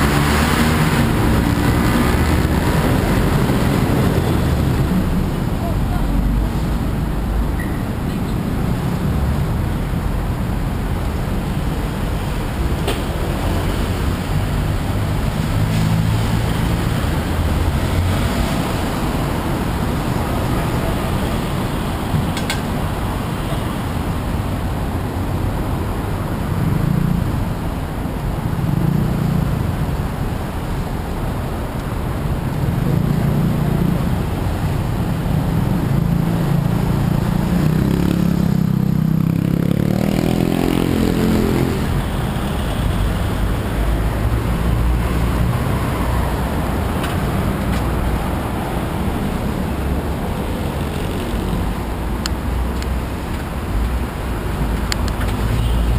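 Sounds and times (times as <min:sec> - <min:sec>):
vehicle engine accelerating: 0:00.0 - 0:05.2
cars and motorbikes passing: 0:00.0 - 0:55.9.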